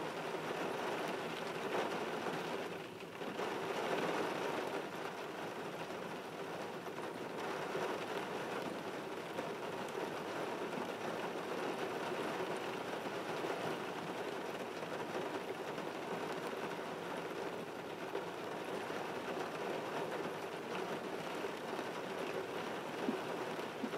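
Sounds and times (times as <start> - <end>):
rain on car windshield: 0.0 - 23.9.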